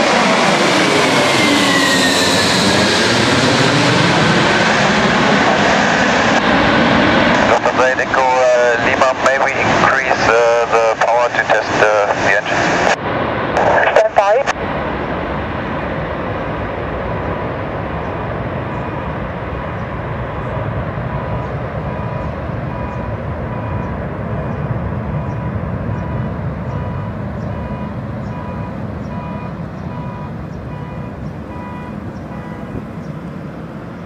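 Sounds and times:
jet engine rumble: 0.0s - 34.0s
car alarm beeping: 21.1s - 24.6s, 25.2s - 33.1s.

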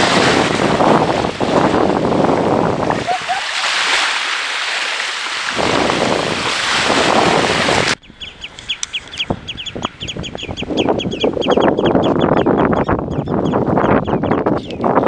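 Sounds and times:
low wind rumble: 0.0s - 3.5s, 5.5s - 15.0s
wind buffeting microphone: 0.0s - 4.3s, 5.4s - 15.0s
small waves washing onto shore: 0.0s - 8.0s
rapid high bird chirps: 8.0s - 14.8s.

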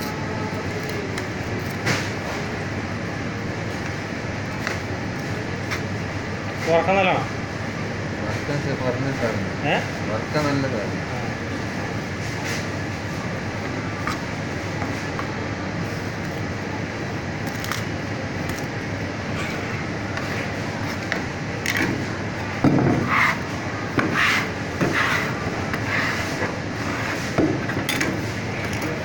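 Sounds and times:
steady background noise: 0.0s - 29.0s
knife scraping on wooden board: 22.9s - 27.4s.

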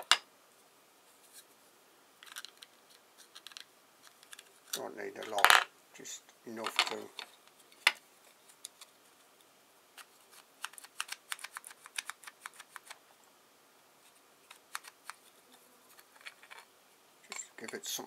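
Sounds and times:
small plastic parts clicking: 2.2s - 5.4s, 10.0s - 13.0s, 14.5s - 15.2s.

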